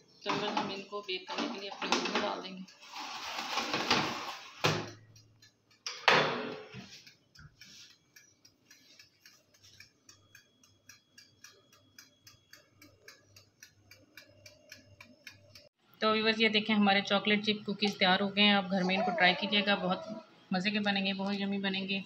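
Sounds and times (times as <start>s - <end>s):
clock-like ticking: 0.0s - 3.0s, 4.8s - 6.0s, 6.6s - 15.8s
baking tray scraping on oven rack: 0.3s - 4.9s.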